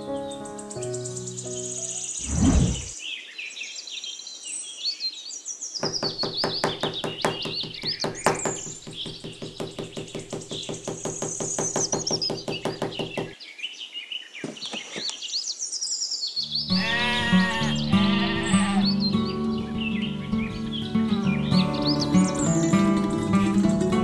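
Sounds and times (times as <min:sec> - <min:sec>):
birds chirping: 0:00.0 - 0:23.9.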